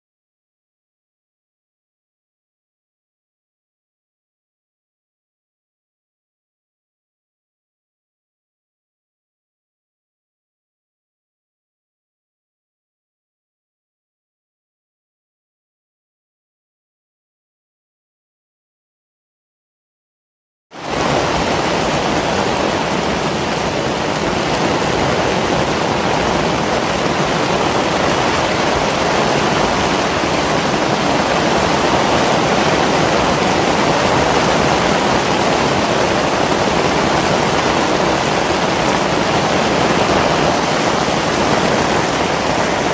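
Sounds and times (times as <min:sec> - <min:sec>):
loud steady rushing noise: 0:20.7 - 0:42.9.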